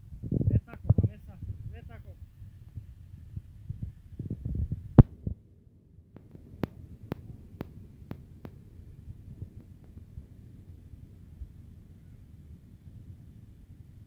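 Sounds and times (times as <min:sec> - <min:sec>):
sharp taps: 0:06.2 - 0:08.6.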